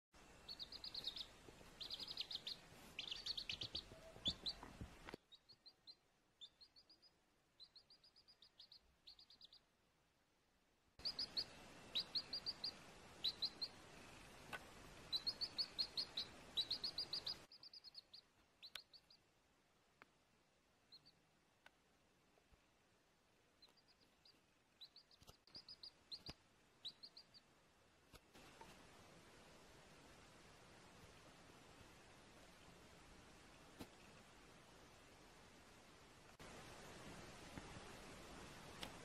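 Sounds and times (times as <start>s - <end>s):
baby chick peeping: 0.2s - 9.7s, 11.0s - 19.3s, 20.9s - 21.2s, 23.6s - 27.5s
faint hiss: 0.2s - 39.0s.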